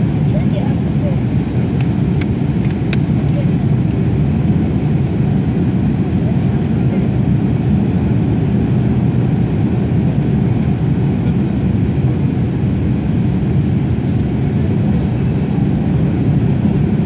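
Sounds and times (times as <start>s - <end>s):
airliner cabin engine noise: 0.0s - 17.0s.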